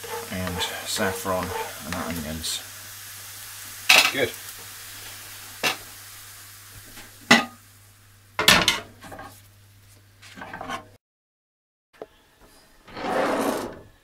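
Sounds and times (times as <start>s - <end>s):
simmering pan hiss: 0.0s - 10.2s
cookware clanking on a hob: 7.3s - 7.6s, 8.4s - 9.3s.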